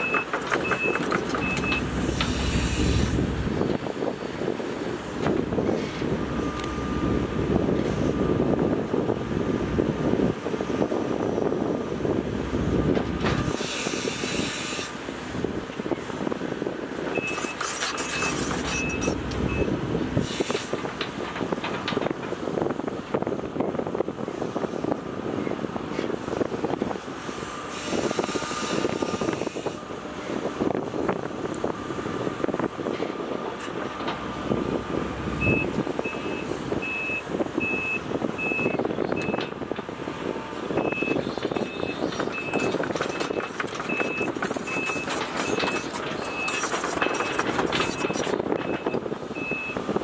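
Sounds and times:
hydraulics moving: 0.0s - 9.0s, 11.6s - 23.7s, 25.8s - 50.0s
excavator diesel engine: 0.0s - 50.0s
high-pitched reversing alarm beeping: 40.8s - 49.8s.

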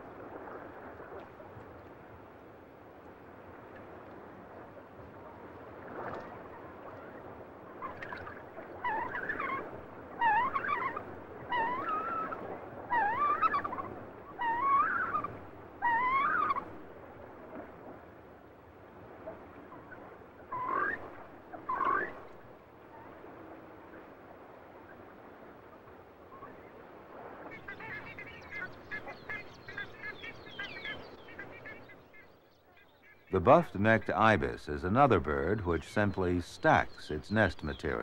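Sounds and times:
coot wavering calls: 7.8s - 16.7s, 20.5s - 22.2s.

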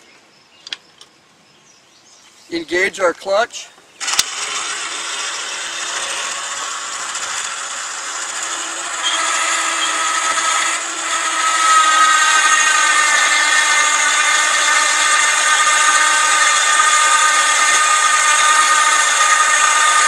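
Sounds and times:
electric winch whining: 4.0s - 20.0s.

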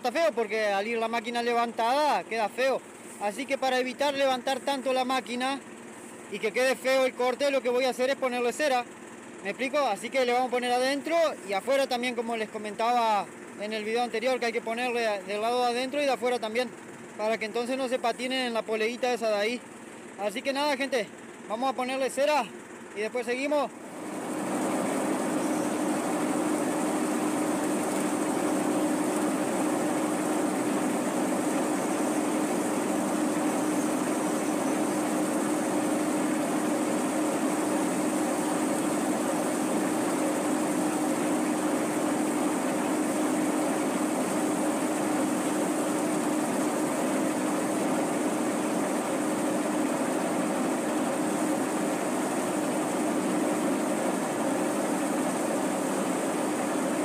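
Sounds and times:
tractor engine running: 22.2s - 57.0s.

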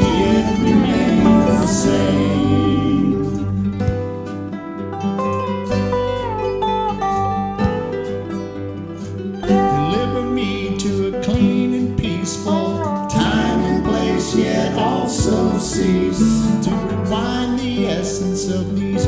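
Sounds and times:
bass line: 0.0s - 4.5s, 9.4s - 12.2s, 13.1s - 19.0s
plucked guitar strings: 0.0s - 19.0s.

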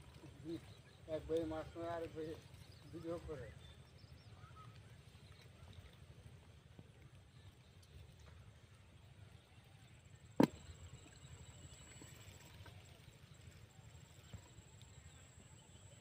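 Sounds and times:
sharp knock: 10.4s - 10.6s.

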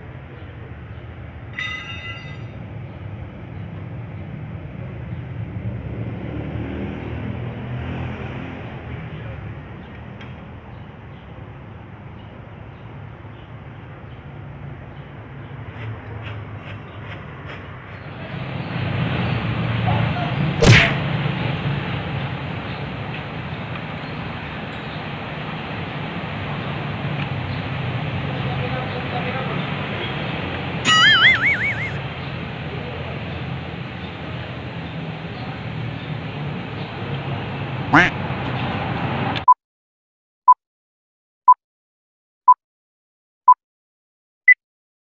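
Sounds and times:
sharp loud click: 20.6s - 21.0s
high-pitched tone: 30.9s - 32.0s.

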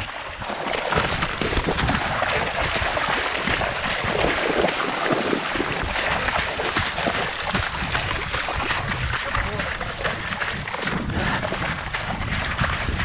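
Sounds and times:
splashing through floodwater: 0.0s - 13.0s
wind rumble on microphone: 0.0s - 13.0s.

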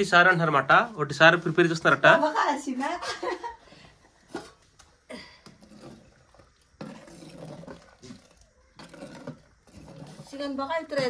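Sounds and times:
ladle sloshing soup in pot: 5.5s - 10.3s.

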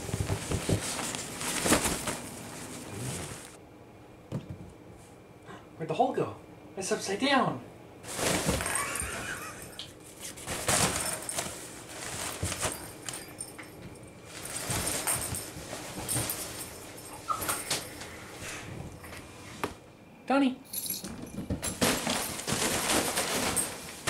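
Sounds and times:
nylon cat tunnel rustling: 0.0s - 3.6s, 8.0s - 9.2s, 10.3s - 13.3s, 14.2s - 17.2s, 21.6s - 24.0s.

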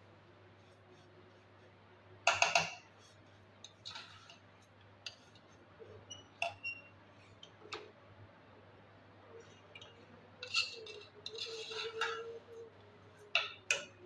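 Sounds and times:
skimmer scraping metal pot: 10.4s - 12.4s.

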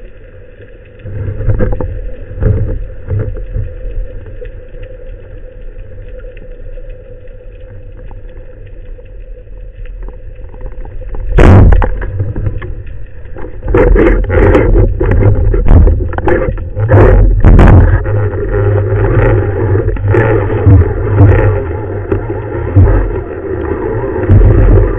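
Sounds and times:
underwater rumble of water: 0.0s - 24.9s.

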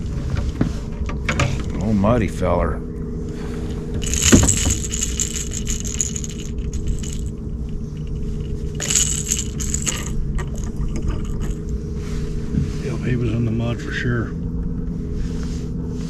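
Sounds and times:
steady low hum: 0.0s - 16.0s
metallic jingling and clicking: 3.6s - 11.7s.

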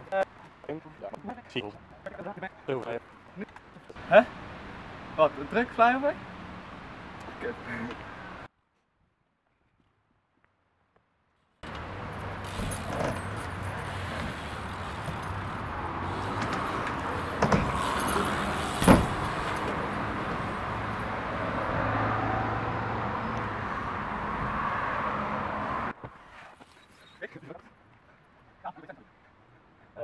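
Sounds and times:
bike tyres rolling on ramps: 11.6s - 21.8s.

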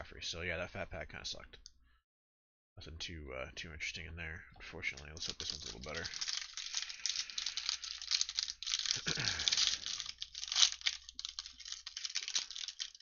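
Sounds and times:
plastic wrapper crinkling and tearing: 5.2s - 13.0s.

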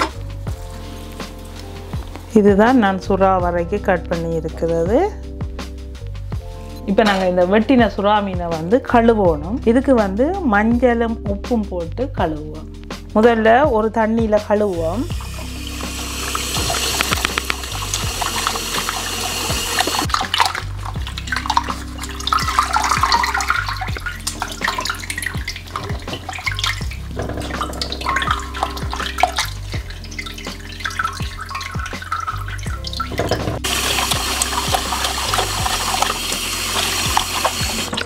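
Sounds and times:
background music with bass line: 0.0s - 38.0s
tap running into glass bowl: 15.3s - 20.6s
hands splashing in water: 15.8s - 38.0s.

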